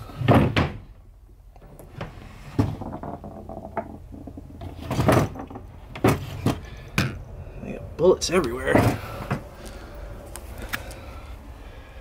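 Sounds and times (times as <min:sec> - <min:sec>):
objects knocking and clattering: 0:01.6 - 0:07.2.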